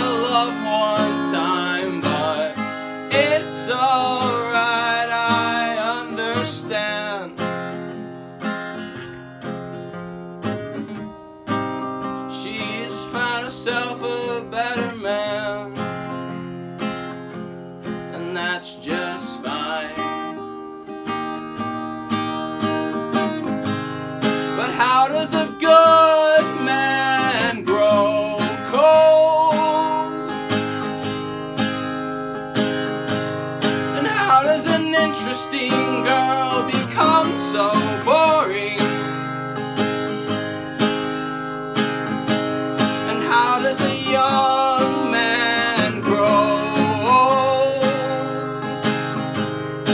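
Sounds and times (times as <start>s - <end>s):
man singing: 0.0s - 7.7s, 12.3s - 16.0s, 18.0s - 20.4s, 24.4s - 30.5s, 33.9s - 39.3s, 42.9s - 48.8s
acoustic guitar strummed and picked: 0.0s - 49.9s.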